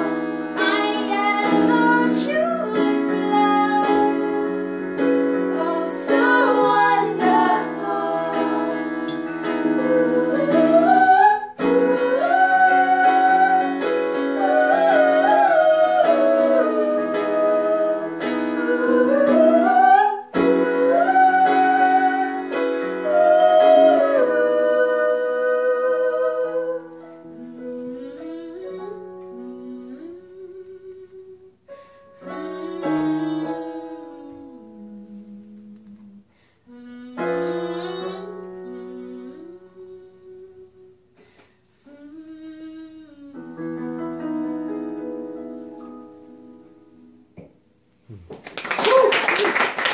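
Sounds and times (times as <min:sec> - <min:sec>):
woman singing slowly: 0:00.0 - 0:04.6, 0:09.6 - 0:31.6, 0:32.2 - 0:41.1, 0:41.8 - 0:44.2
electric keyboard chords: 0:00.0 - 0:41.2.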